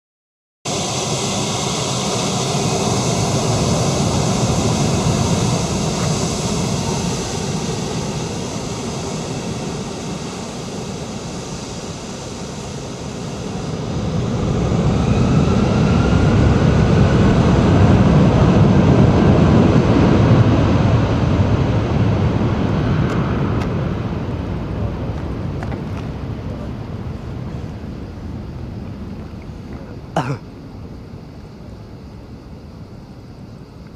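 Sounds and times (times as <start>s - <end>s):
jet engines spooling up: 0.7s - 33.9s
jet engines whining: 0.7s - 33.9s.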